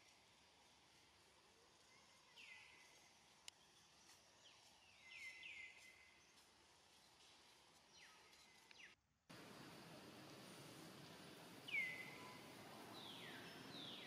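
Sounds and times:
outdoor background hiss: 0:00.0 - 0:14.0
distant bird chirps: 0:11.6 - 0:14.0.

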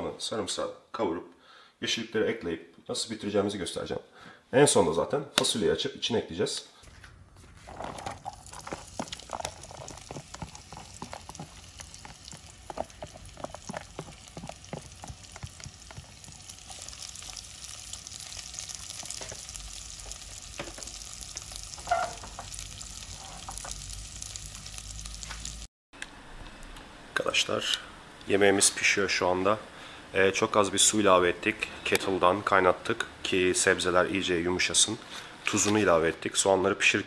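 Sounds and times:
onions sizzling in oil: 0:08.1 - 0:25.7.

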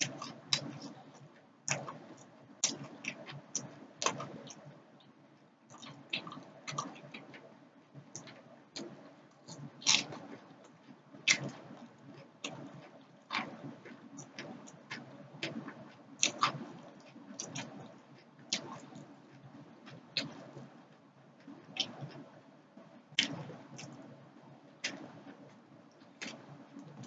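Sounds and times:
person chewing with mouth clicks: 0:00.0 - 0:04.6, 0:05.7 - 0:20.6.

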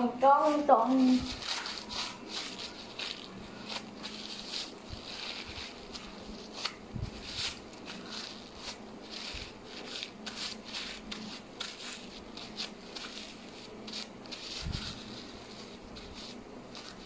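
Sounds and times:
paper tissue crinkling: 0:00.0 - 0:17.0.

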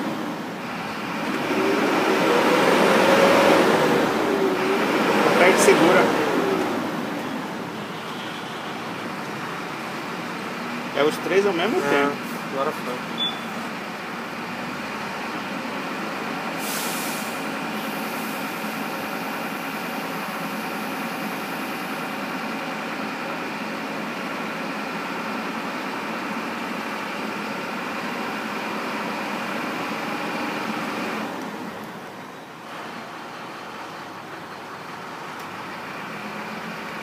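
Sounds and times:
bus diesel engine idling: 0:00.0 - 0:01.4, 0:03.6 - 0:37.0
brief hiss: 0:16.6 - 0:18.5.

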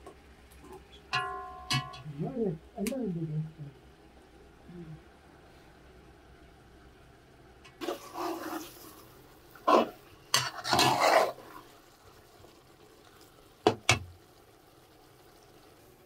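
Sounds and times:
utensil scraping in cooking pot: 0:07.8 - 0:11.8.

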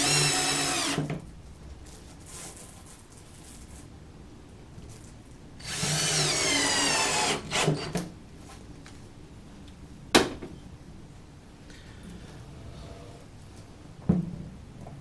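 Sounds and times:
cordless drill whine: 0:00.0 - 0:01.1, 0:05.6 - 0:07.9.

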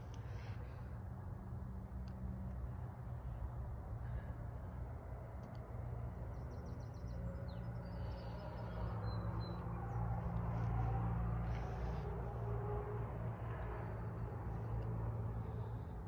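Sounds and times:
steady low rumble: 0:02.8 - 0:16.0.

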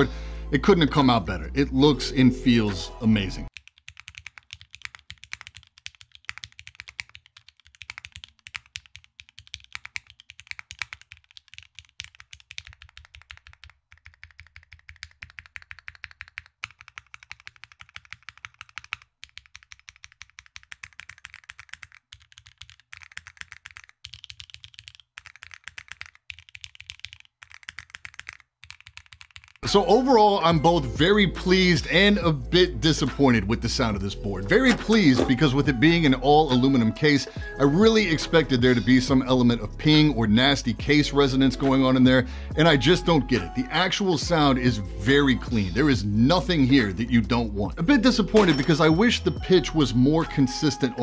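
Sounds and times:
fast typing on mechanical keyboard: 0:03.5 - 0:29.6.

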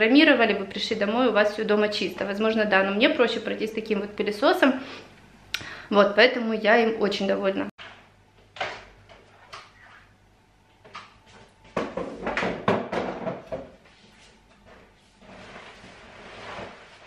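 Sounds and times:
chairs knocking and clattering: 0:10.8 - 0:13.9
chairs rustling on floor: 0:10.9 - 0:17.0.

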